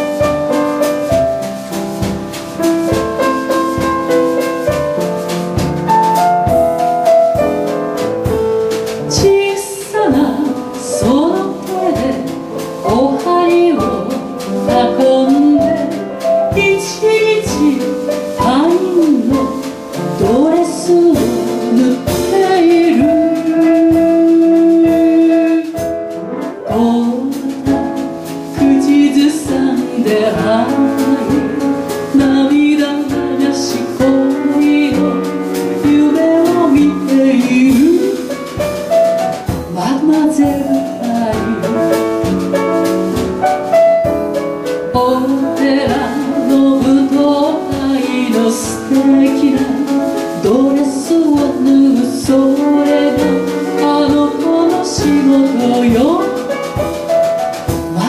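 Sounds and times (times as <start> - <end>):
piano accompaniment: 0.0 - 58.0
woman singing into a microphone: 9.1 - 15.9, 16.5 - 19.5, 20.2 - 25.9, 26.7 - 27.9, 28.6 - 38.3, 39.7 - 41.9, 44.9 - 56.4.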